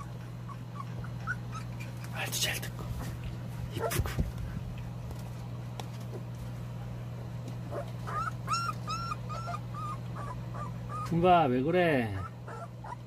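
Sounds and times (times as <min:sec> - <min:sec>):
puppy whimpering: 0:00.0 - 0:02.2, 0:07.7 - 0:13.0
steady low hum: 0:00.0 - 0:13.0.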